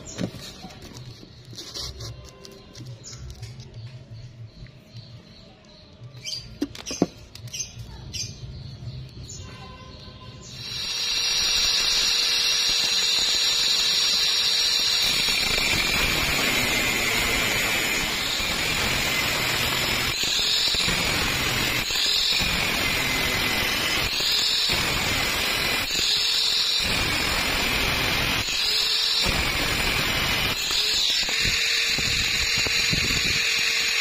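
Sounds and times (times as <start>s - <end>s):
disc grinding through metal pipe: 10.4s - 34.0s
angle grinder whining: 10.5s - 34.0s.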